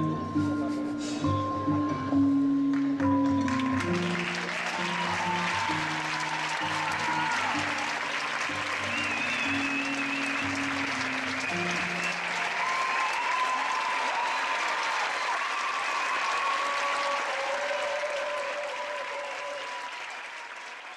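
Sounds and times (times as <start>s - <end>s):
low music notes: 0.0s - 12.3s
audience applauding: 2.7s - 20.9s.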